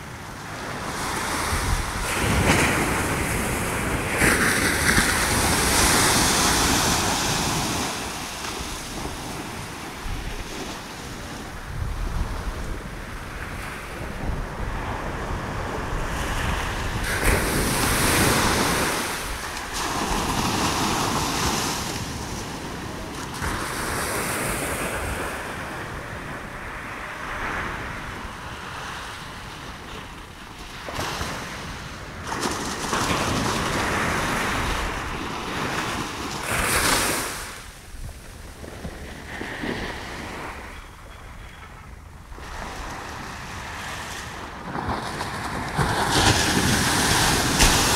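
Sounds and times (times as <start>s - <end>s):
surf washing up a beach: 0.0s - 47.9s
wind buffeting microphone: 0.0s - 47.9s.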